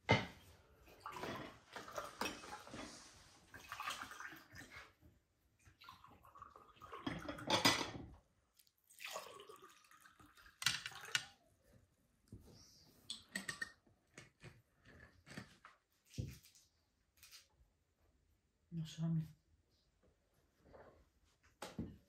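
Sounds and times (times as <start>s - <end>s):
plates clinking: 7.0s - 8.1s.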